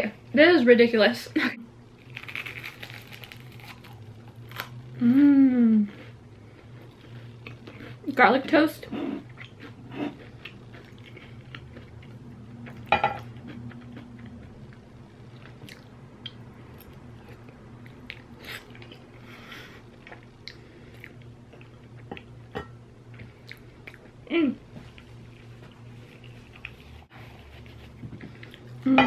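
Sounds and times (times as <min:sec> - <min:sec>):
steady low hum: 0:00.0 - 0:29.0
person humming: 0:05.0 - 0:05.9
close-up chewing: 0:05.9 - 0:08.1, 0:09.2 - 0:19.1.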